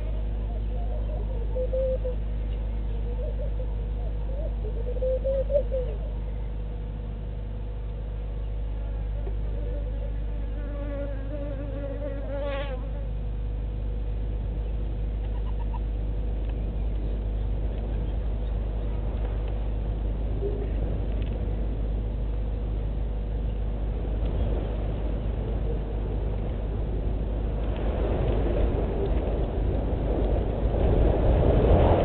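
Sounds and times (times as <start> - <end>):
steady low hum: 0.0 - 32.0
flying insect buzzing: 9.5 - 13.1.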